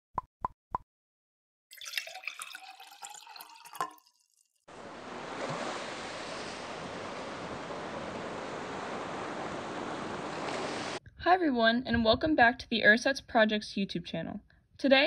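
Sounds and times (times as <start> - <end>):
bubbling dripping water: 1.7 - 4.6
ocean surf: 4.7 - 11.0.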